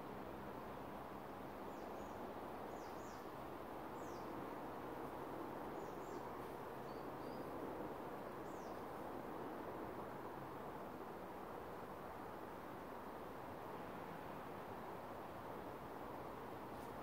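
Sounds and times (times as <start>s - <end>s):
small birds chirping: 1.7s - 3.3s, 4.0s - 4.4s, 5.8s - 7.6s, 8.4s - 8.8s.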